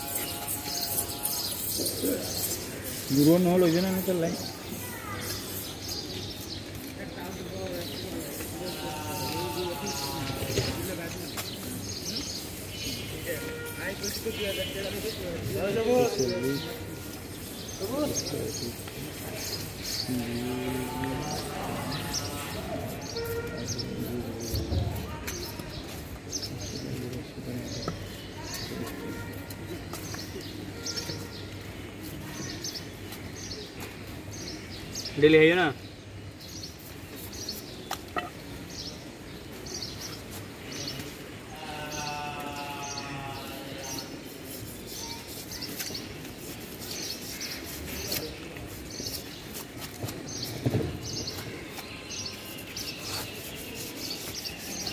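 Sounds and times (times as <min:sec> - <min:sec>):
birds chirping: 0:00.0 - 0:54.9
knife scraping fish scales: 0:51.7 - 0:54.9.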